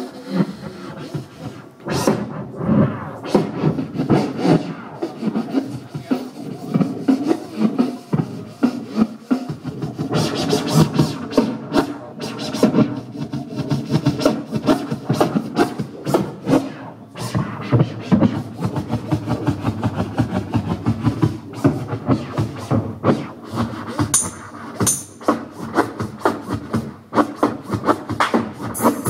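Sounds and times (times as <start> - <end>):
vinyl record scratching: 0.0 - 29.0
hip-hop beat: 28.2 - 29.0.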